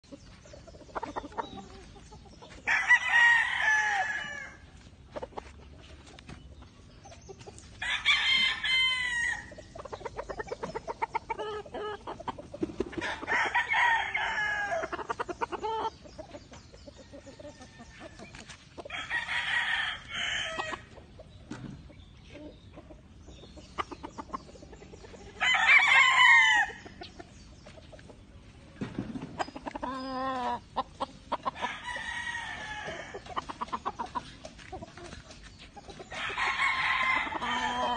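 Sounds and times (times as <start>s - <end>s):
roosters crowing: 2.6s - 4.9s, 7.7s - 21.1s, 23.8s - 27.2s, 28.8s - 35.1s, 35.9s - 37.9s.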